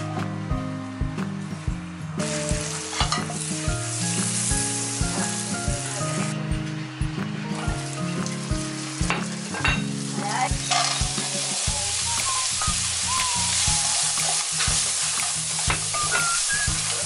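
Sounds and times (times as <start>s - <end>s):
food sizzling in oil: 1.5s - 17.0s
spatula scraping and tapping pan: 14.2s - 16.3s.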